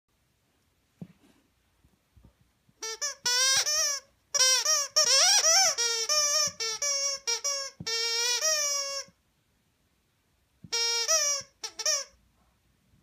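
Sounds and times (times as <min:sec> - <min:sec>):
squeaky toy squeaking: 0:02.8 - 0:09.2, 0:10.7 - 0:12.2.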